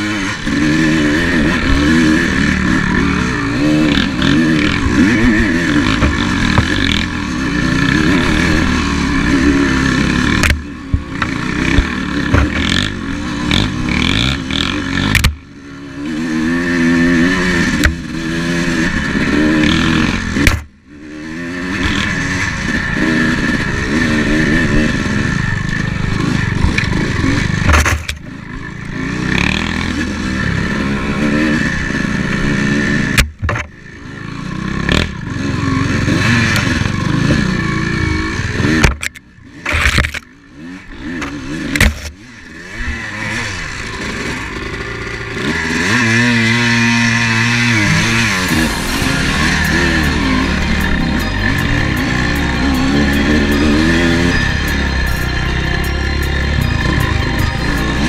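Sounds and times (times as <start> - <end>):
dirt bike engine revving: 0.0 - 58.0
sharp knocks and rattles: 10.3 - 13.0, 27.6 - 28.3.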